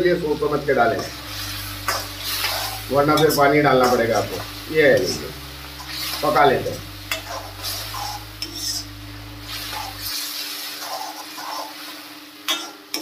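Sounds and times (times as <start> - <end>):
spoon scraping a cooking pan: 1.3 - 3.4, 7.1 - 8.9, 9.5 - 13.0.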